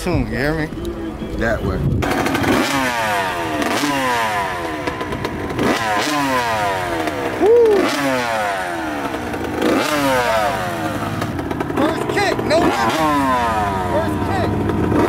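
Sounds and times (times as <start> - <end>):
dirt bike engine revving: 0.2 - 15.0.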